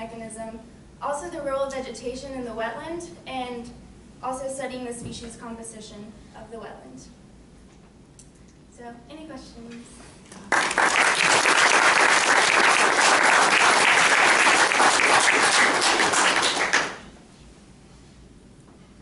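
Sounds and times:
audience applauding: 10.5s - 17.1s.

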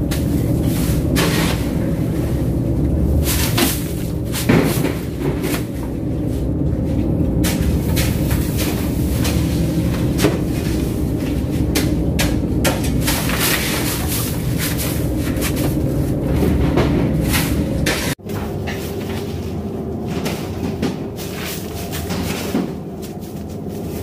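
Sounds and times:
boat engine droning: 0.0s - 18.6s.

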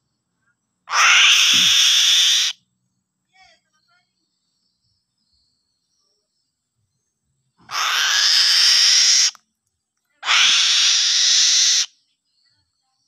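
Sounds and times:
young eagle screeching: 0.9s - 2.6s, 7.7s - 9.4s, 10.2s - 11.9s.

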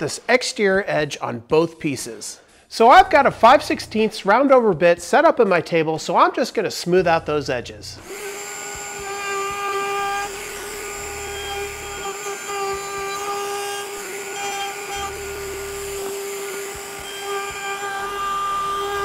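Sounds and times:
router cutting wood: 7.9s - 19.0s
router whining: 7.9s - 19.0s.

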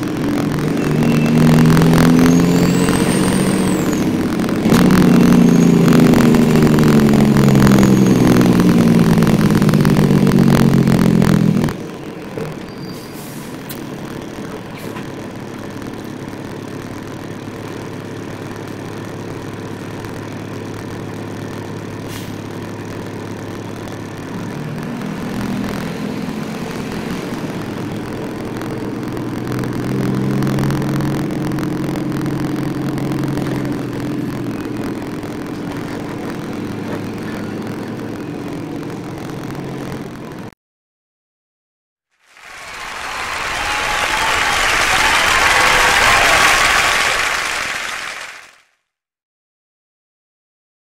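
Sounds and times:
truck diesel engine running: 0.0s - 40.5s.

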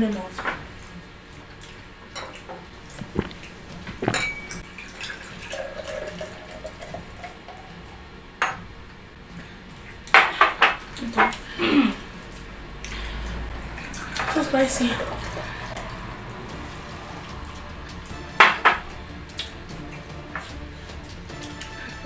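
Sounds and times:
liquid pouring into a glass: 2.9s - 7.4s
tableware clinking: 3.0s - 4.6s.

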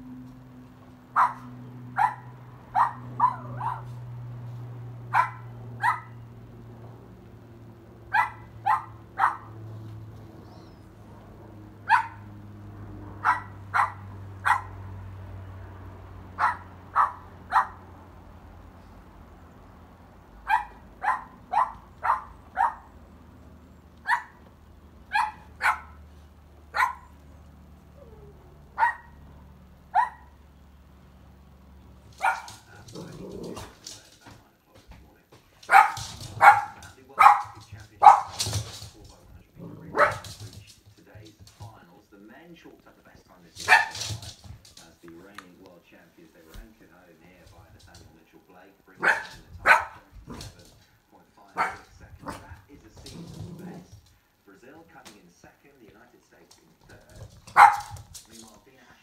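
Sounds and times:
puppy barking: 1.1s - 4.2s, 5.0s - 6.4s, 8.0s - 9.6s, 11.7s - 12.4s, 13.2s - 15.0s, 16.3s - 17.9s, 20.4s - 23.0s, 24.0s - 26.1s, 26.7s - 27.2s, 28.0s - 30.4s, 32.1s - 33.8s, 35.6s - 38.7s, 39.7s - 40.5s, 43.6s - 44.2s, 49.0s - 50.5s, 51.5s - 52.5s, 57.4s - 58.1s.

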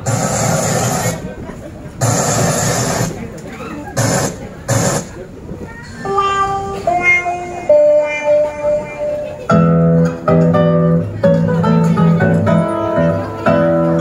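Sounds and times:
held melody line: 6.0s - 14.0s
plucked chords: 6.0s - 14.0s.

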